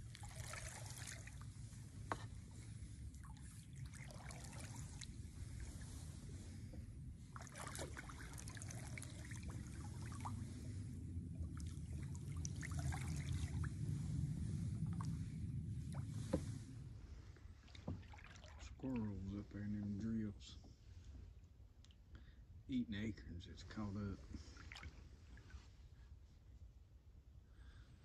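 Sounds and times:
water dripping off paddle: 0:00.0 - 0:02.3, 0:03.1 - 0:05.2, 0:07.4 - 0:10.4, 0:11.4 - 0:13.7
paddle stroking through water: 0:00.0 - 0:19.0.

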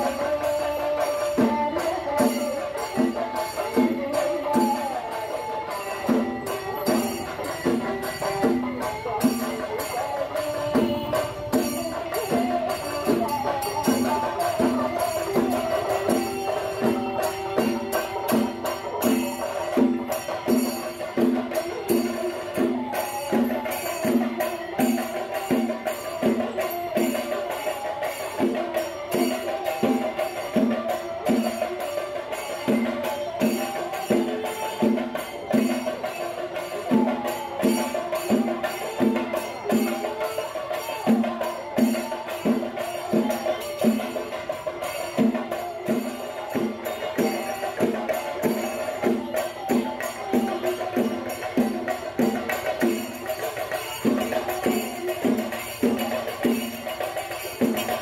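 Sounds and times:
music with percussive beat: 0:00.0 - 0:58.0.

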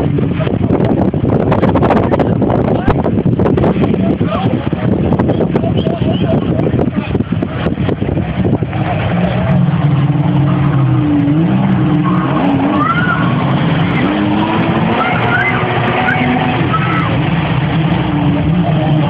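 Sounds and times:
motor engines droning: 0:00.0 - 0:19.0.

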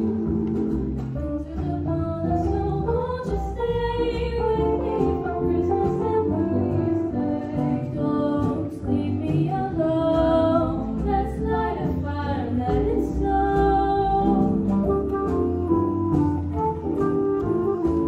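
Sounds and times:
instrumental accompaniment: 0:00.0 - 0:18.0
two women singing a duet: 0:01.4 - 0:14.8.

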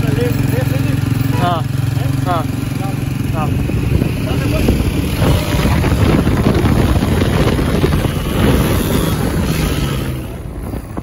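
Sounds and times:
vehicle engine and road noise: 0:00.0 - 0:11.0
wind buffeting microphone: 0:02.5 - 0:11.0.

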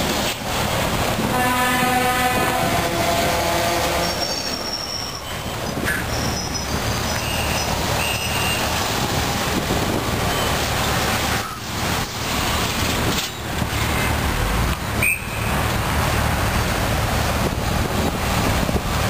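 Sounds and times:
heavy lorries driving past: 0:00.0 - 0:19.0
truck horn: 0:01.3 - 0:05.5.

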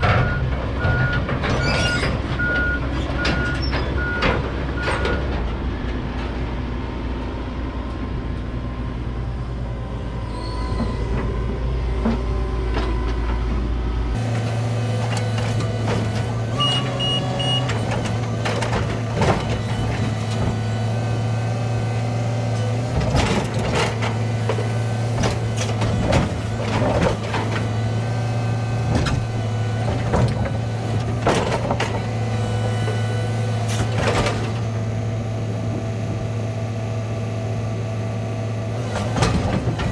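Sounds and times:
diesel engine running: 0:00.0 - 0:39.9
short warning beeps: 0:16.6 - 0:17.7.

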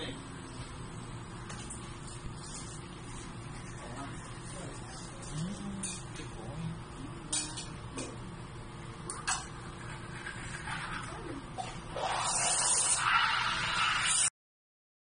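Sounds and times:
espresso machine humming: 0:08.5 - 0:14.3
espresso machine hissing: 0:11.9 - 0:14.3.

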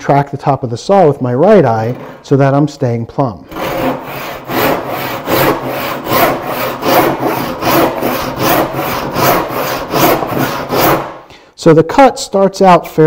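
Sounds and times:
handsaw cutting wood: 0:03.5 - 0:11.2.

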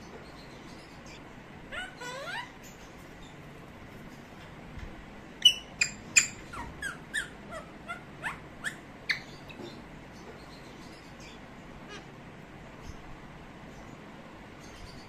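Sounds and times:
parakeet squawking and chirping: 0:00.8 - 0:03.4, 0:05.4 - 0:09.8, 0:10.7 - 0:12.2.

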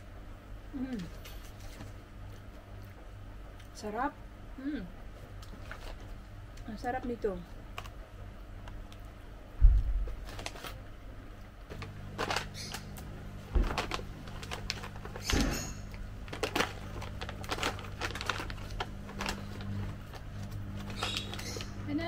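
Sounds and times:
steady low hum: 0:00.0 - 0:22.0
plastic snack bag crinkling: 0:10.1 - 0:10.9, 0:11.7 - 0:22.0.

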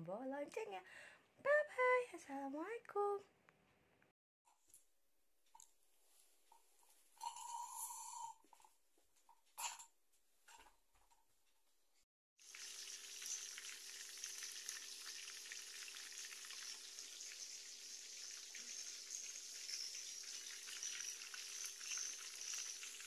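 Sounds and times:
food sizzling in hot oil: 0:12.4 - 0:23.0.

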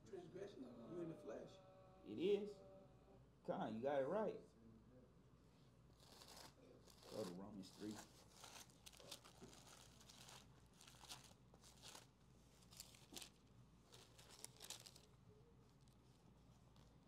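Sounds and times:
faint paper pages rustling: 0:05.9 - 0:17.0.

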